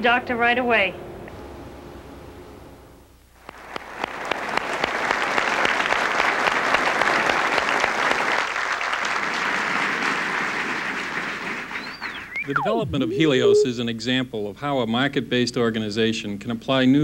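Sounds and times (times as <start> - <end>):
audience applauding: 3.4 - 12.6.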